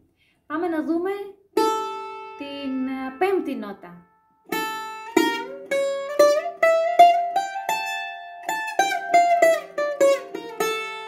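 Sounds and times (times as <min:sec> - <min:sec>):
bouzouki picked note by note: 0:01.6 - 0:05.7.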